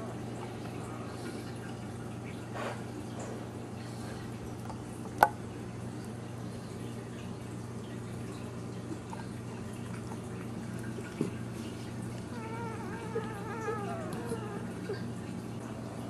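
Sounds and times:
puppy whining: 12.1s - 15.4s.

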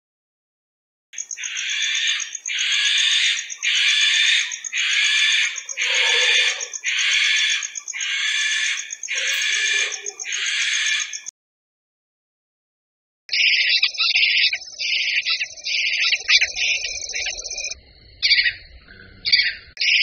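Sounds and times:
owl hissing screeches: 1.4s - 11.2s.

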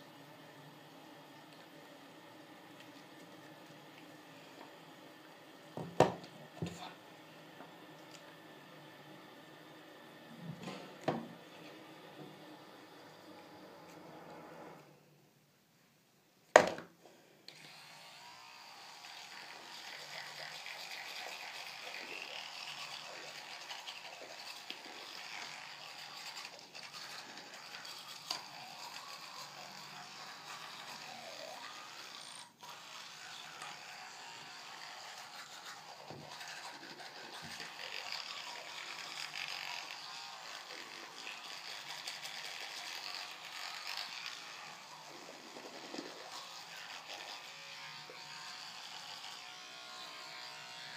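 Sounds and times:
electric toothbrush buzzing: 0.0s - 15.0s, 17.5s - 50.9s
brush scrubbing teeth: 18.6s - 49.4s.

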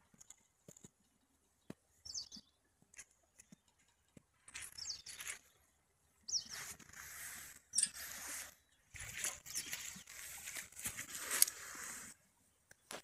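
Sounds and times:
small bird chirping: 1.6s - 2.7s, 4.6s - 10.4s.

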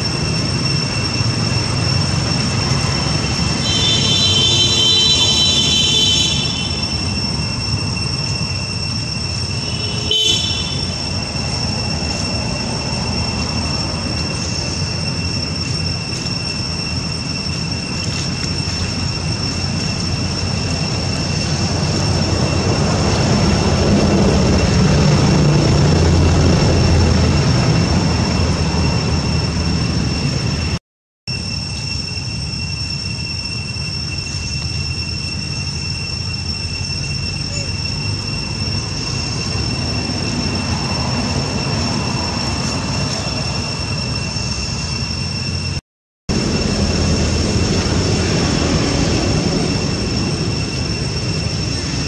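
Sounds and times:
high-pitched two-tone drone: 0.0s - 52.0s
short high horn-like call: 3.5s - 7.4s, 9.5s - 11.6s.

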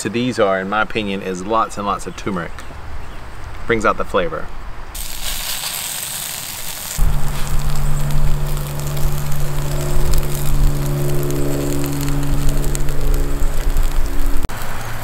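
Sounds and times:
burgers sizzling on grill: 5.0s - 15.0s.

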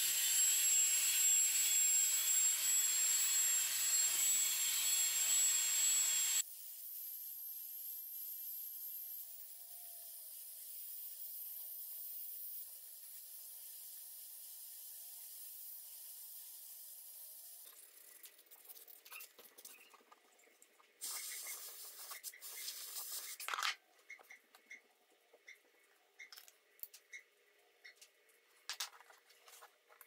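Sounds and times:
sandpaper rubbing on wood: 21.0s - 23.4s.

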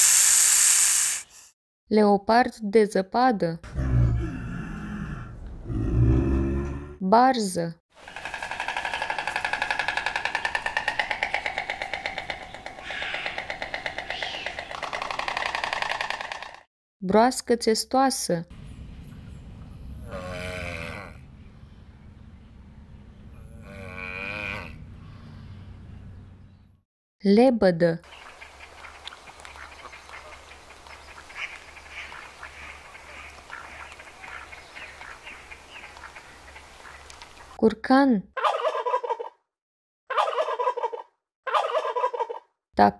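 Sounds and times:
stork bill-clattering: 8.0s - 16.6s
swans calling: 8.1s - 15.0s, 28.1s - 37.5s
low steady hum: 18.5s - 26.7s.

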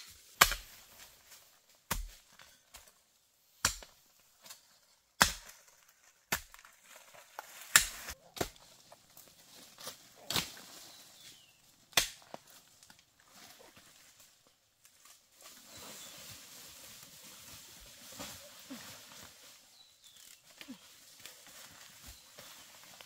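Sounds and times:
hoe chopping into soil: 0.0s - 0.8s, 7.4s - 8.7s
dirt scraping: 15.0s - 23.0s.

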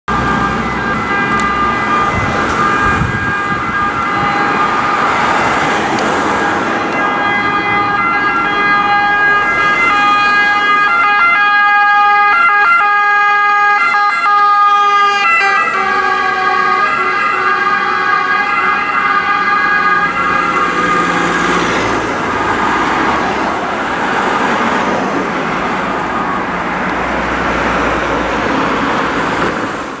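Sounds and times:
ambulance siren two-tone wail: 0.1s - 29.4s
passing cars: 0.1s - 30.0s.

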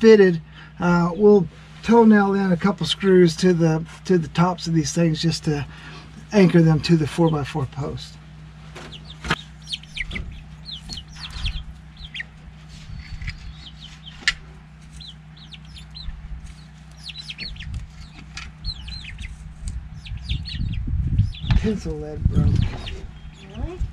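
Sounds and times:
low steady hum: 0.0s - 23.9s
chickens clucking: 5.7s - 23.8s.

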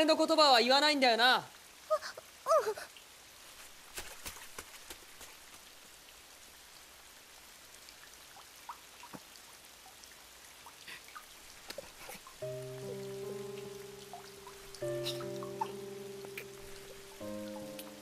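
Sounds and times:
faint steady rain: 0.0s - 18.0s
drops dripping and plinking: 10.7s - 18.0s.

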